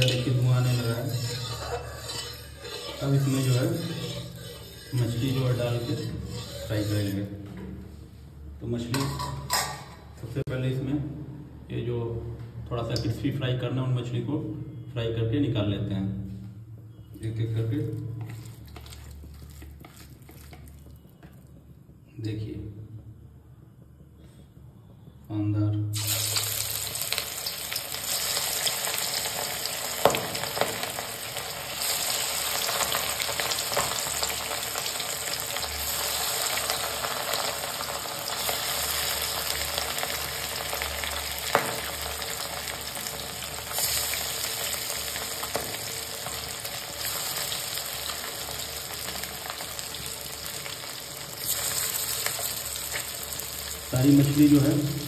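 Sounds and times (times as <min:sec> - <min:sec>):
fish sizzling in hot oil: 0:00.0 - 0:05.4, 0:26.0 - 0:55.0.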